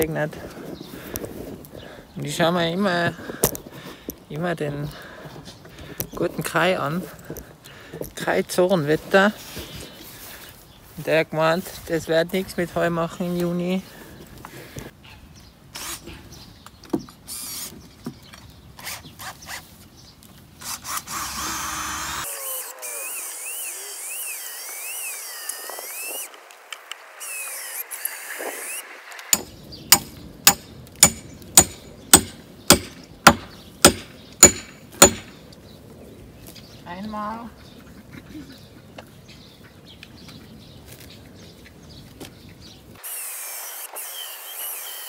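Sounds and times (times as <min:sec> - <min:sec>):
cordless drill running: 0:20.6 - 0:26.3, 0:27.2 - 0:28.8, 0:43.0 - 0:45.0
sharp blows: 0:27.2 - 0:35.4.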